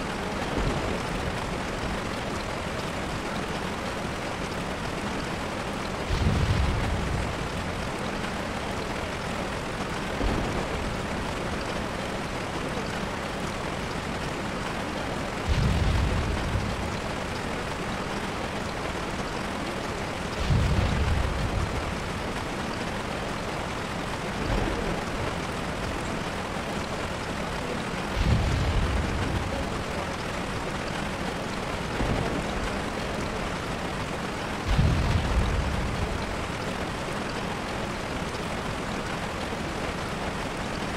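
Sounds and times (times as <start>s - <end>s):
rain-like hiss: 0.0s - 40.9s
low thunder-like rumbles: 5.8s - 8.9s, 15.3s - 19.3s, 20.1s - 26.0s, 28.0s - 37.3s.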